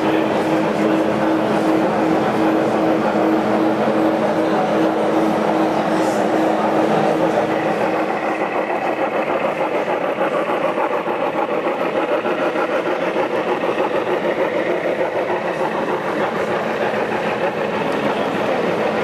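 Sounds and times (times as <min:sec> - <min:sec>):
model steam locomotive chuffing: 0:00.0 - 0:19.0.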